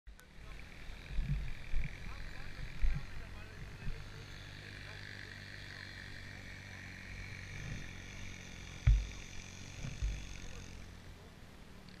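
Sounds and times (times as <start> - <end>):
distant dirt bike engine buzzing: 0.1 - 12.0
wind thump on microphone: 8.8 - 9.2, 9.8 - 10.3.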